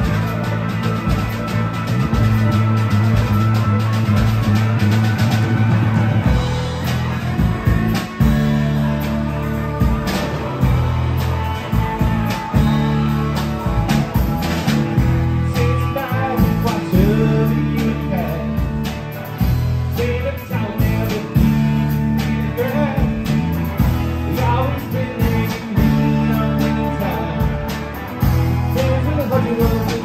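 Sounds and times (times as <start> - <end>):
drum kit steady beat: 0.0 - 30.0
electric bass: 0.0 - 30.0
electric guitars: 0.0 - 30.0
man singing: 7.1 - 30.0.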